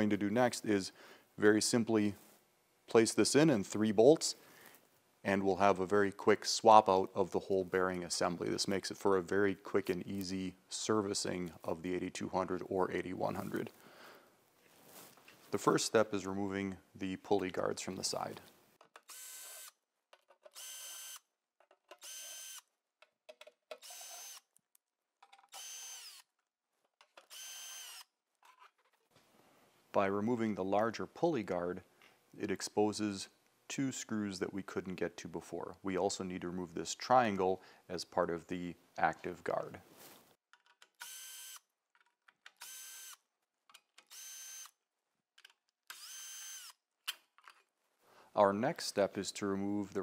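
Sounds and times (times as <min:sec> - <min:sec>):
cordless drill whining: 0:19.0 - 0:19.8, 0:20.5 - 0:21.2, 0:21.9 - 0:22.7, 0:23.8 - 0:24.5, 0:25.5 - 0:26.3, 0:27.2 - 0:28.1, 0:41.0 - 0:41.6, 0:42.6 - 0:43.2, 0:44.1 - 0:44.7, 0:45.9 - 0:46.8.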